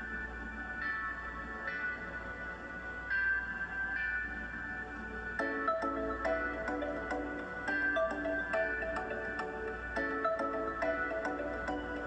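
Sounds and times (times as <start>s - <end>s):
soft bell-like music: 0.0s - 12.0s.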